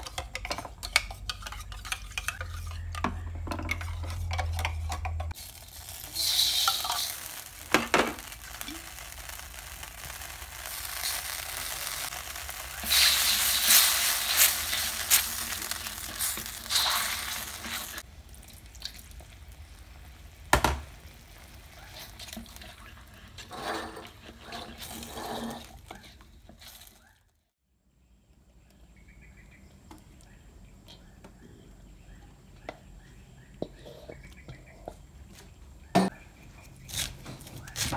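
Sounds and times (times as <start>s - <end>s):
spatula scraping wok: 0.0s - 18.0s, 21.4s - 27.0s
sauce sizzling in a wok: 5.4s - 22.2s.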